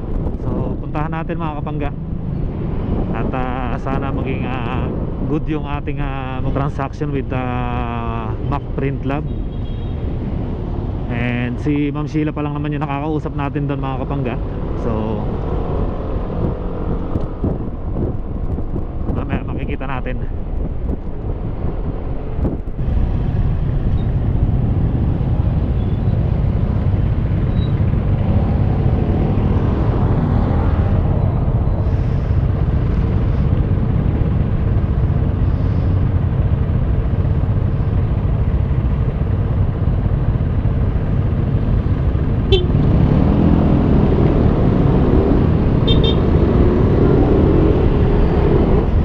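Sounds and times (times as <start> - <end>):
other motorcycles: 0.0 - 49.0
scooter engine: 45.8 - 46.4.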